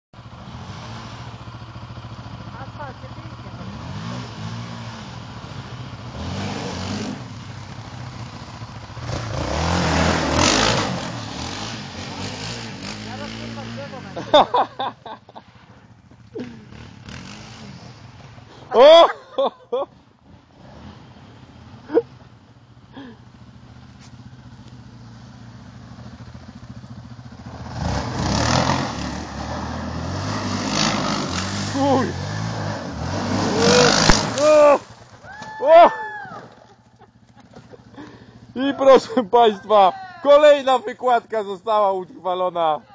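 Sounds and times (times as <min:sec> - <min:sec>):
quad engine revving: 0:00.2 - 0:14.8, 0:16.3 - 0:19.2, 0:25.6 - 0:36.6
tyres spinning throwing grit: 0:30.9 - 0:35.6.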